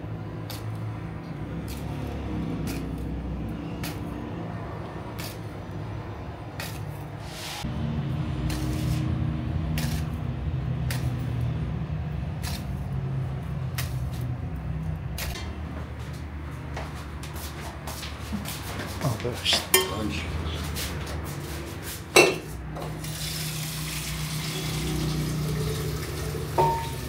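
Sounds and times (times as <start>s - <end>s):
short scrape: 6.6s - 7.7s, 8.5s - 9.1s.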